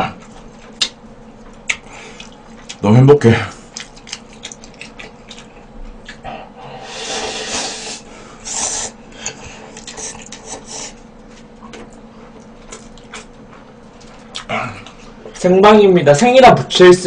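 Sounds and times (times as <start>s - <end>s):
wet mouth clicks while chewing: 0.2s - 2.8s, 3.7s - 6.2s, 8.6s - 10.7s, 11.6s - 15.1s
person slurping from a bowl: 6.8s - 11.0s.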